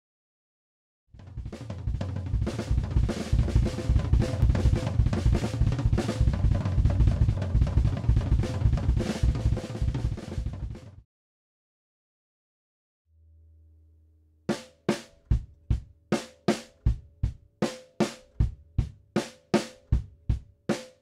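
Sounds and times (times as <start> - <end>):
fast drum fill: 1.2 - 11.0, 14.5 - 21.0.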